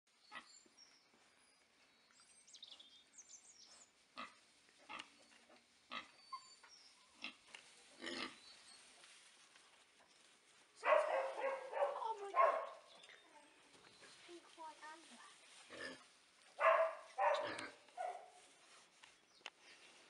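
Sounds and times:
piglets grunting: 8.0s - 8.4s.

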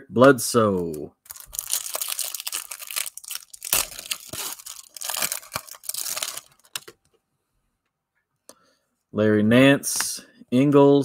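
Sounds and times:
wrapper being torn open: 1.2s - 7.0s
cellophane wrapper crinkling: 1.2s - 7.1s.

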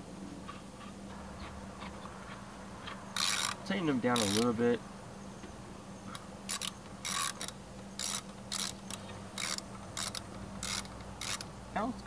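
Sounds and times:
steady low hum: 0.0s - 12.0s
socket ratchet clicking: 3.2s - 3.6s, 4.2s - 4.5s, 6.1s - 11.5s.

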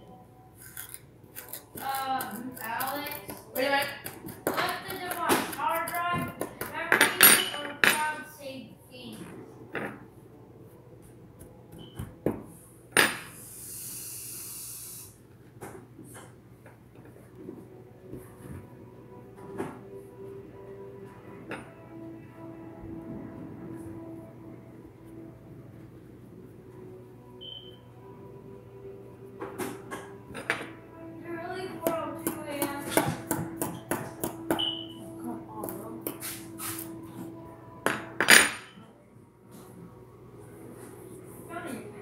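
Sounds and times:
background music: 0.0s - 42.0s
high hiss: 13.2s - 15.3s.

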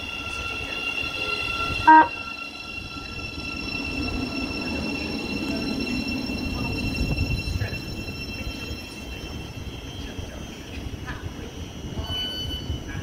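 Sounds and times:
train horn toot: 0.0s - 3.2s
train rumbling past: 0.0s - 13.0s.

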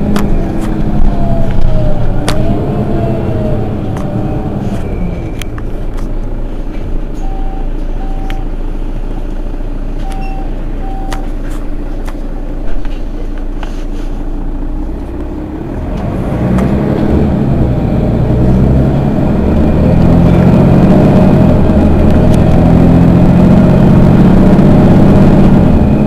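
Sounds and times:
bus diesel engine idling: 0.0s - 26.0s
short high beeps: 10.0s - 11.3s.

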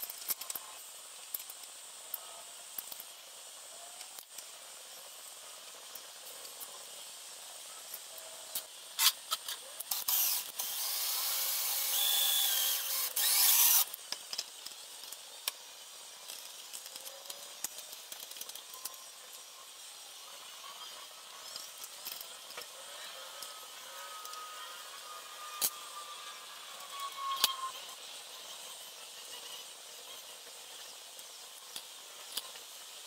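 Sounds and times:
metallic clicks of parts: 0.0s - 3.1s, 16.2s - 19.4s, 26.8s - 27.7s
cordless drill running: 9.9s - 13.9s.

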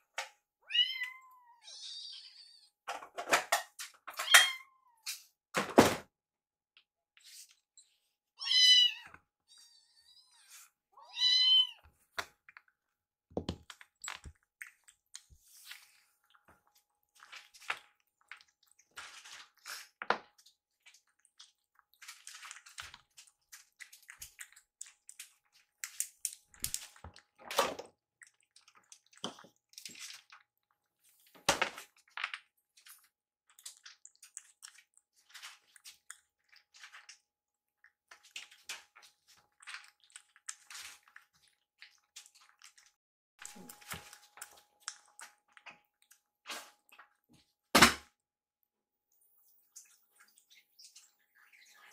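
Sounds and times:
kitten meowing: 8.4s - 11.8s
kittens chewing and smacking: 11.9s - 47.6s.

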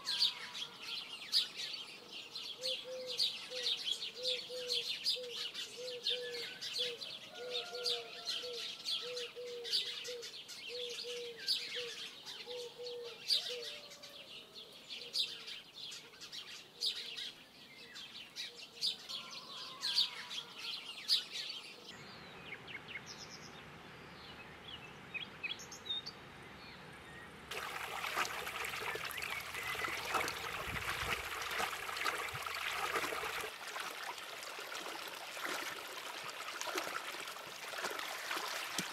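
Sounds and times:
low cooing call: 2.6s - 14.2s
small birds chirping: 20.0s - 34.2s
water pouring into pool: 27.5s - 38.9s.

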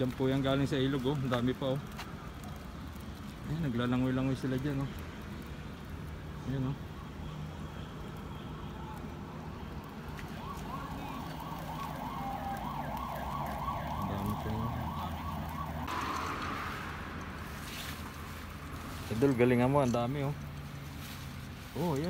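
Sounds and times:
siren warbling: 10.3s - 18.0s
low hum: 15.7s - 19.3s
rushing hiss: 15.9s - 22.0s.

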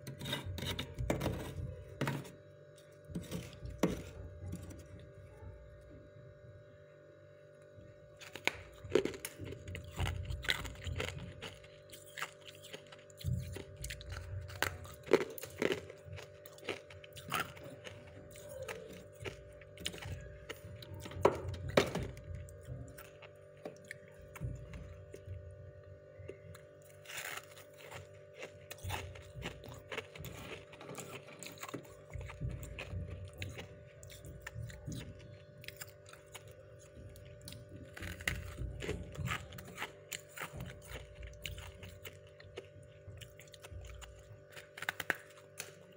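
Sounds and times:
frost crunching when chewed: 0.0s - 6.2s, 7.6s - 45.9s.

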